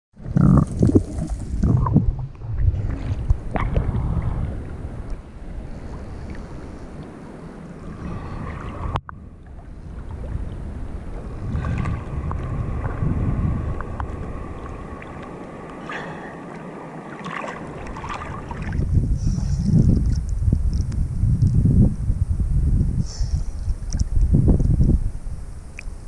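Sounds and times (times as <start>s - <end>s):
muffled low rumble: 0.2s - 6.3s, 7.9s - 16.2s
water sloshing and splashing: 0.6s - 5.2s, 7.8s - 20.9s.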